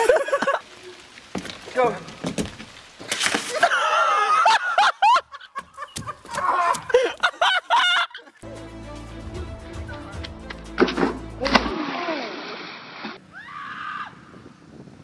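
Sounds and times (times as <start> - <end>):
background music: 8.4 - 11.8.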